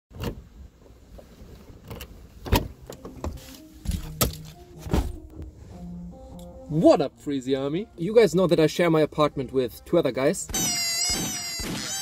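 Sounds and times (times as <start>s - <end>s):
car door clunks: 1.9s - 5.5s.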